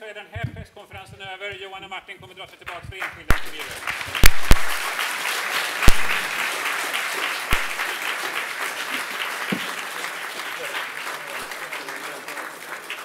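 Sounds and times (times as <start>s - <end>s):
audience applauding: 2.7s - 13.0s
loud thumps: 4.2s - 4.8s, 5.8s - 6.3s, 7.5s - 7.8s.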